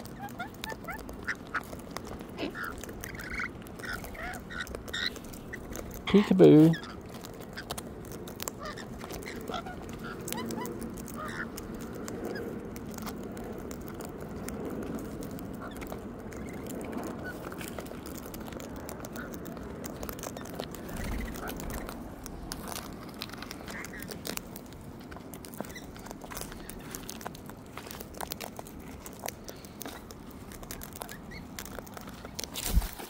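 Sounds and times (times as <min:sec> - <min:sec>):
beaks cracking seed: 0:00.0 - 0:33.0
bird chirps and calls: 0:02.4 - 0:05.6.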